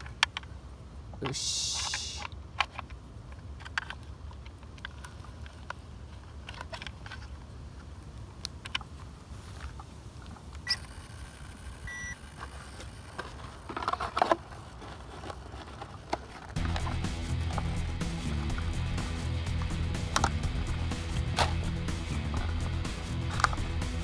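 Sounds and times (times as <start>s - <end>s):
plastic clicks and rustles: 0.0s - 0.6s, 1.8s - 18.8s, 21.1s - 23.8s
short beep: 11.9s - 12.2s.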